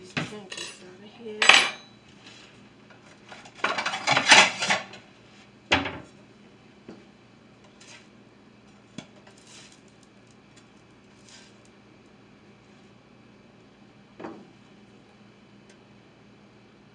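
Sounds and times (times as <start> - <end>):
spatula and plate clattering on pan: 3.3 - 5.0.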